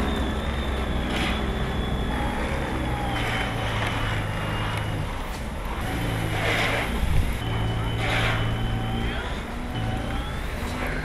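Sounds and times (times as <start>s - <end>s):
snow blower motor hum: 0.0s - 11.0s.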